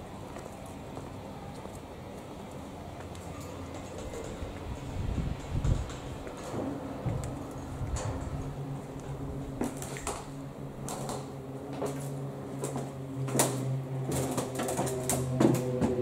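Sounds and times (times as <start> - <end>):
steady low hum: 0.0 - 16.0
footsteps on metal floor: 3.8 - 16.0.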